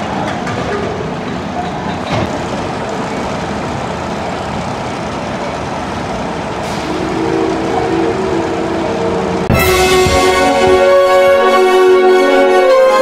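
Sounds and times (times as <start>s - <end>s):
roller coaster rumbling on track: 0.0s - 13.0s
steady pitched tone: 6.6s - 13.0s.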